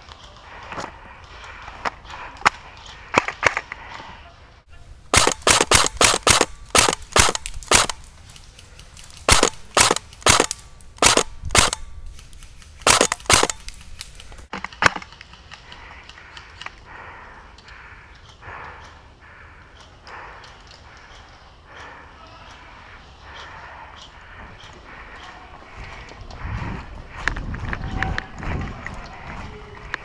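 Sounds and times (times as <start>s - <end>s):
airsoft rifle shots: 5.1s - 8.0s, 9.2s - 11.9s, 12.8s - 13.7s.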